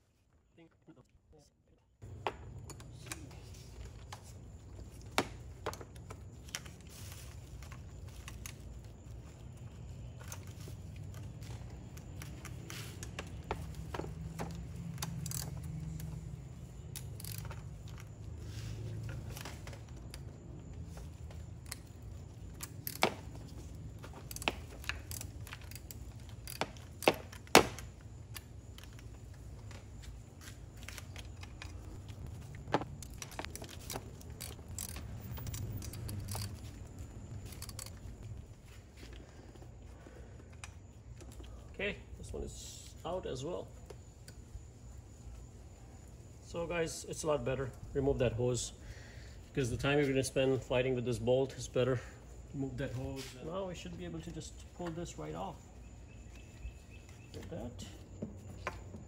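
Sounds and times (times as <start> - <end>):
metallic tool clicks and clinks: 14.9 - 16.2, 16.8 - 18.1, 33.0 - 38.3.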